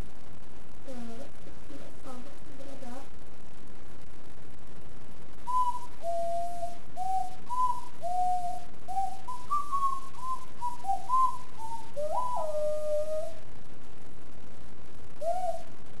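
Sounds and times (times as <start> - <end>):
ocarina melody: 5.5 - 13.4, 15.2 - 15.7.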